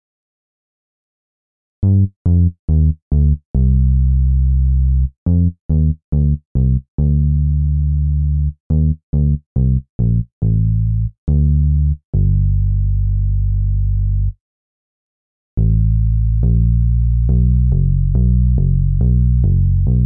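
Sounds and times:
synth bass line: 15.6s - 20.0s.

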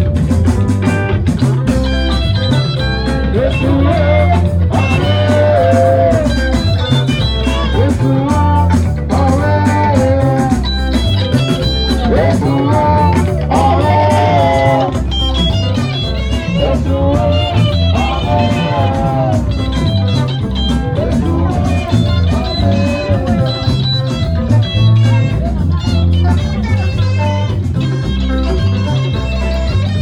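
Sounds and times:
bass line: 0.0s - 30.0s
electric guitar lead line: 0.0s - 30.0s.

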